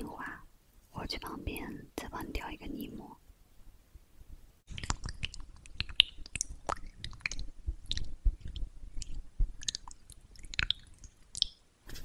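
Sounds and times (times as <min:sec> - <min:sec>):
wet squishes and crackles: 0:04.7 - 0:11.6.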